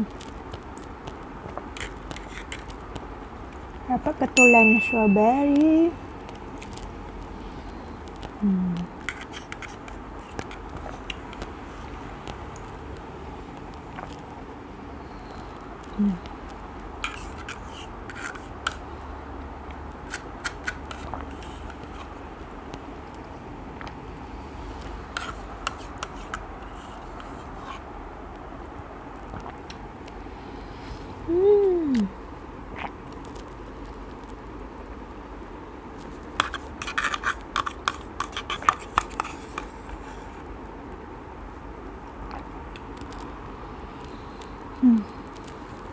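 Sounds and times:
spoon scraping plastic cup: 1.8 - 2.7, 9.1 - 11.0, 17.0 - 18.8, 20.1 - 22.1, 25.1 - 27.8, 36.4 - 40.0.

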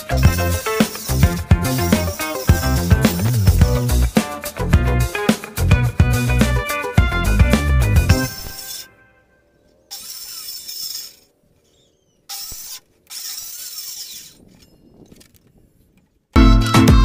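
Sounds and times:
music: 0.0 - 8.6, 16.4 - 17.0
circular saw cutting wood: 0.0 - 9.0, 9.6 - 15.4.

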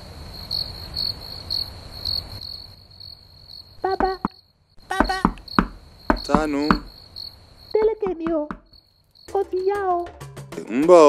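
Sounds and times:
crickets chirping: 0.0 - 10.0
person calling out: 4.9 - 5.5.

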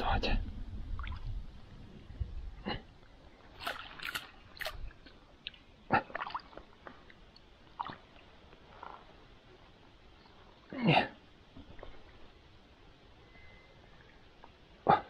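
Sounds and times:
landing net splashing water: 3.5 - 6.9, 7.7 - 9.1.

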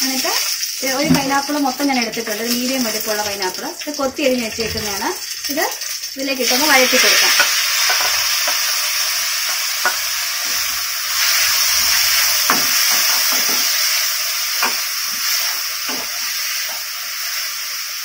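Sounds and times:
fruit sizzling in hot oil: 0.0 - 18.0
wooden spatula scraping pan: 2.8 - 5.3.

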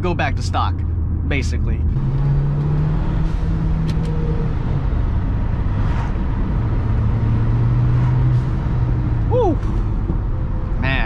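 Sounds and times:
car engine hum and tyre noise: 0.0 - 11.0.

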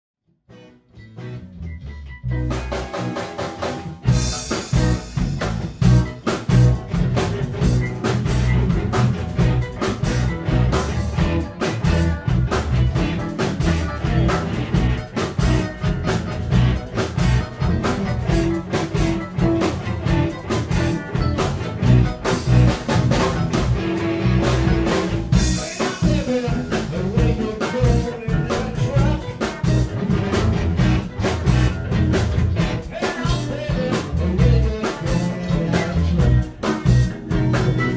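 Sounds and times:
rock band playing blues boogie: 0.5 - 37.9
drum kit beat: 2.2 - 37.9.

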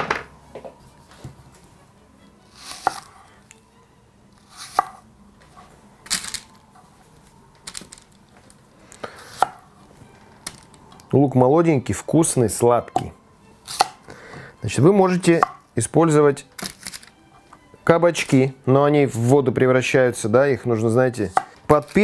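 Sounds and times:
onion rustling: 2.5 - 3.4.

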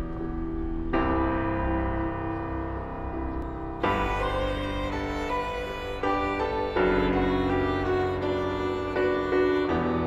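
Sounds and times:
lyrical accompaniment music chords: 0.0 - 10.0.

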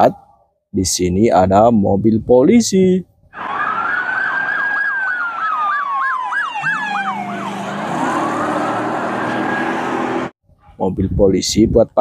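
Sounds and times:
low steady siren tone: 3.4 - 10.3
police siren fast yelp: 3.4 - 10.3
police siren wail: 3.4 - 10.3.

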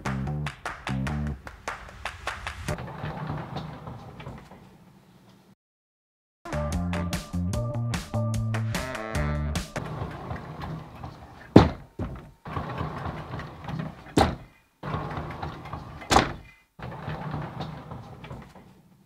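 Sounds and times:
sliding door rolling on track: 1.8 - 4.7, 9.8 - 18.7
door knocking against frame: 11.5 - 12.3.

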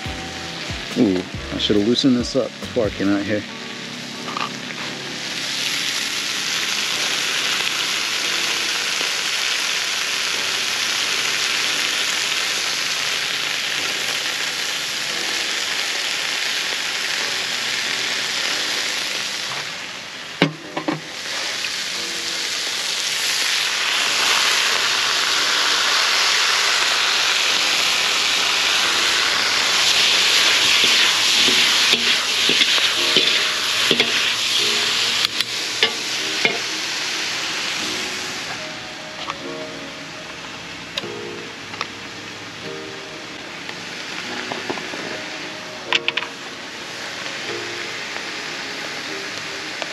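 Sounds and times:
food sizzling in a wok: 0.0 - 49.9
metal utensils scraping wok: 27.8 - 38.6.

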